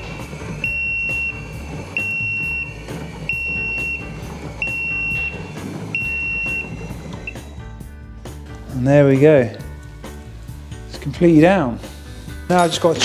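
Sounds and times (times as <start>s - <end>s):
car lift warning buzzer beeping: 0.0s - 7.6s.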